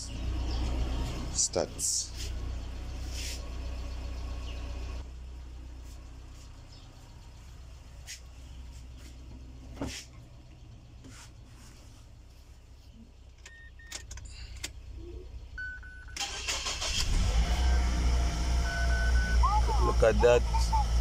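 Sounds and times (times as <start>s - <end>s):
car engine starting and idling: 0.0s - 21.0s.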